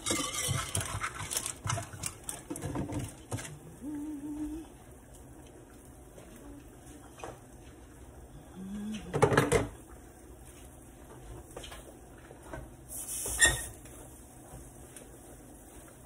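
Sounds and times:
frying pan scraping on stove grate: 0:12.9 - 0:13.8.

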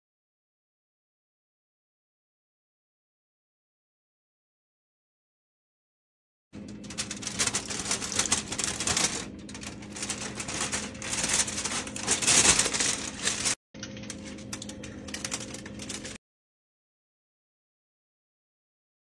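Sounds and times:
aluminium foil crinkling: 0:06.6 - 0:16.2
low hum: 0:06.6 - 0:16.2.

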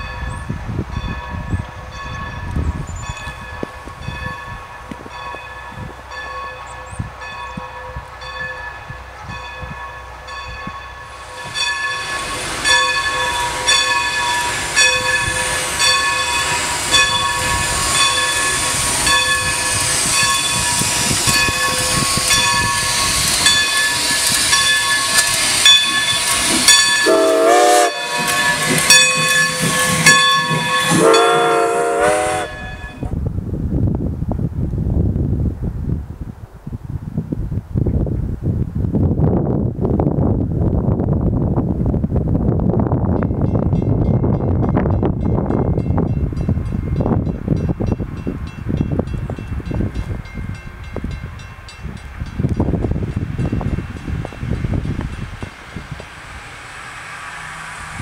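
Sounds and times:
locomotive bell ringing: 0:00.0 - 0:33.2, 0:43.1 - 0:55.6
steam locomotive passing: 0:00.0 - 0:37.2, 0:37.8 - 0:58.0
wind noise: 0:00.0 - 0:58.0
steam hissing: 0:11.1 - 0:32.8
steam whistle blasts: 0:27.0 - 0:28.8, 0:30.7 - 0:33.1.

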